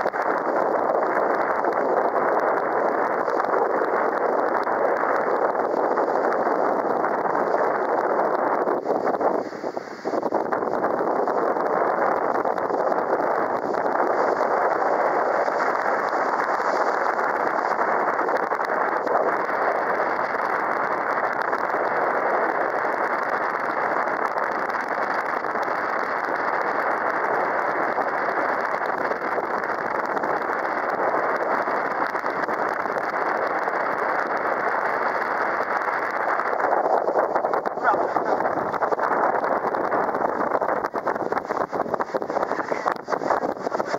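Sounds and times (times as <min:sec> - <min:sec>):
rushing water: 0:00.0 - 0:43.9
wind: 0:00.0 - 0:43.9.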